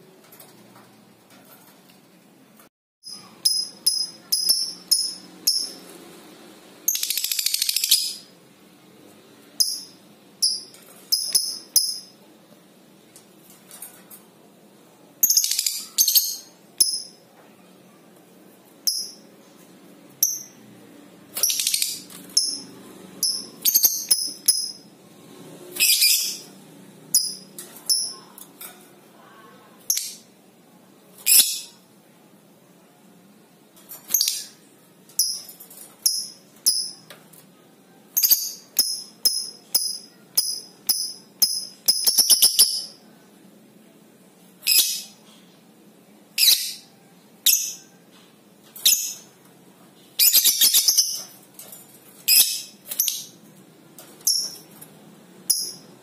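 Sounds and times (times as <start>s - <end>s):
lovebird high chirps: 3.1s - 5.8s, 6.9s - 8.3s, 9.6s - 12.2s, 21.4s - 24.8s, 25.8s - 26.5s, 31.2s - 31.8s, 38.2s - 43.0s, 44.6s - 45.2s, 46.4s - 47.9s, 48.8s - 49.3s, 50.2s - 51.3s, 52.3s - 53.4s
lovebird rattling chatter: 54.1s - 54.8s.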